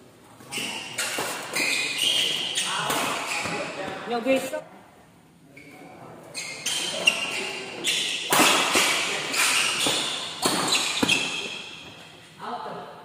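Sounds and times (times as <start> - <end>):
shoes squeaking on court floor: 0.4 - 4.4, 5.6 - 12.3
rackets hitting shuttlecock: 8.0 - 12.1.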